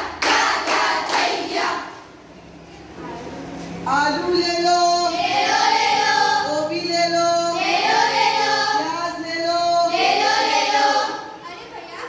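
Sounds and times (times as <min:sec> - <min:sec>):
girls singing in unison: 0:00.0 - 0:02.1, 0:04.6 - 0:11.4.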